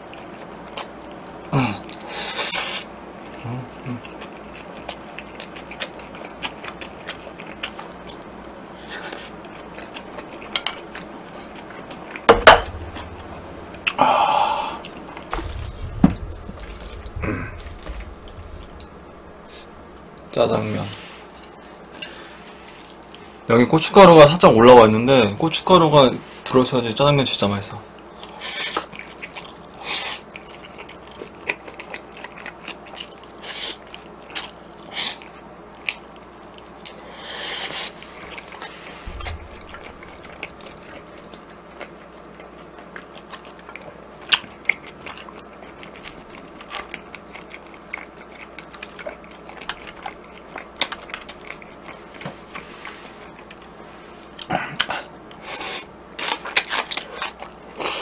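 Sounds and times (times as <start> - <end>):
chewing: 0.0 - 2.1, 3.2 - 14.0, 28.0 - 58.0.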